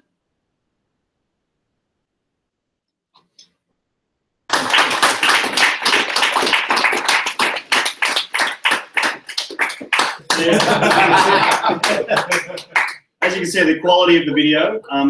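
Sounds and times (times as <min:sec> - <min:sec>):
crowd applauding: 0:04.5 - 0:13.6.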